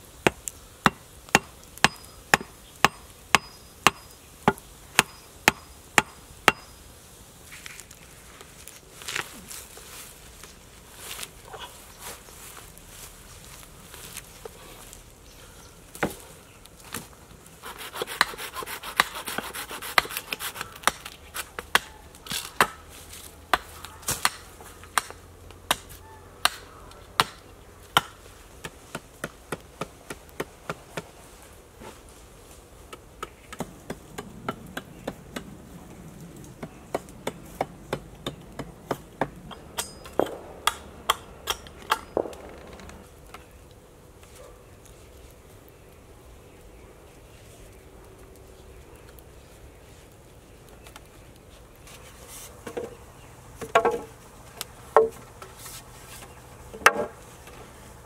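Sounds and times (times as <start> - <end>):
hatchet chopping wood: 0.2 - 6.7, 17.8 - 22.8, 23.5 - 31.1, 32.9 - 35.5, 36.6 - 42.5.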